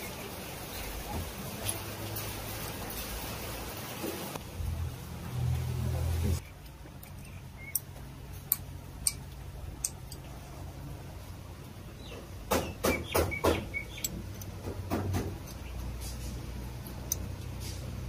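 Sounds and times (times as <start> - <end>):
metal tools clicking on metal: 6.6 - 10.3, 13.9 - 17.8.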